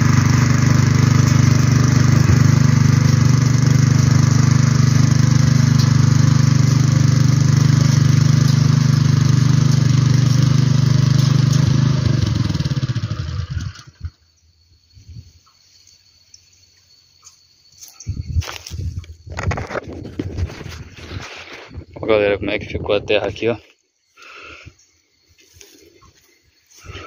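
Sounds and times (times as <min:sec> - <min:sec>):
tiller engine running: 0:00.0 - 0:14.2.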